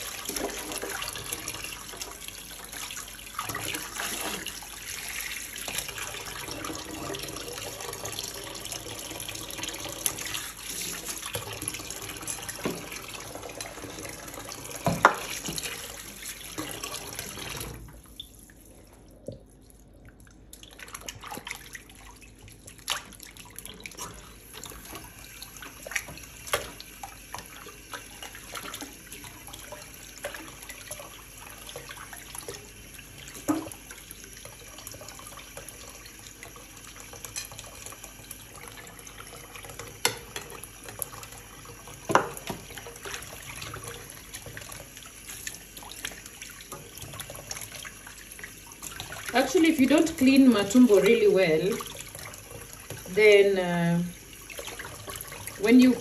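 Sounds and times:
tap water running into steel sink: 0.0s - 18.3s, 23.6s - 56.0s
water splashing: 42.1s - 56.0s.

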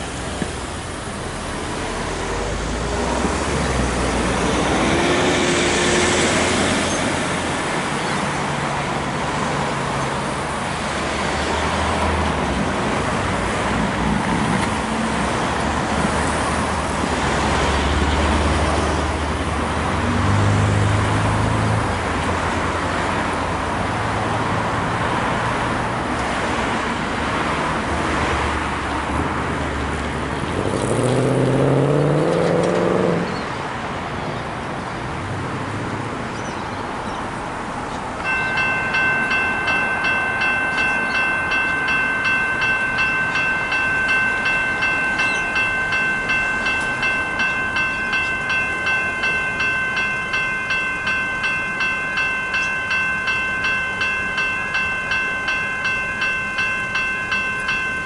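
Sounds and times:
cars driving past: 0.0s - 58.0s
car engine accelerating: 30.3s - 33.4s.

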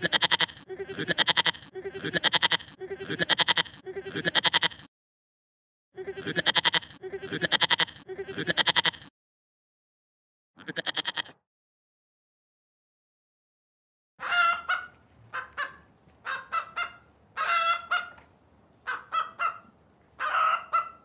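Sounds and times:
goat bleating: 0.0s - 4.9s, 6.0s - 9.1s, 10.6s - 11.4s.

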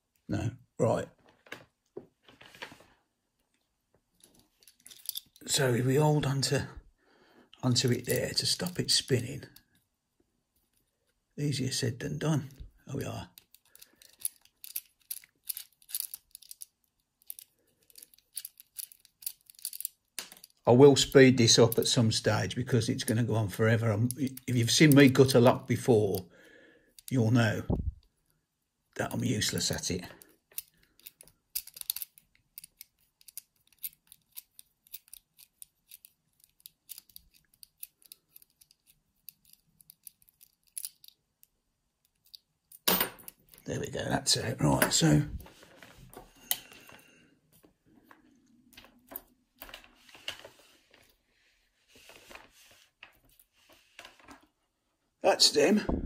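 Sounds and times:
hand tool clicking and scraping in lock: 4.2s - 5.5s, 13.3s - 20.6s, 30.2s - 43.6s.

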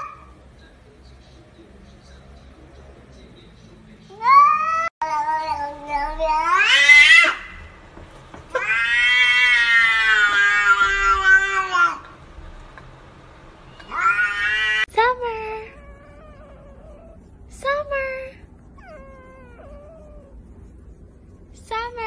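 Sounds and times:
cat meowing: 4.1s - 7.7s, 8.5s - 12.1s, 13.8s - 14.9s.

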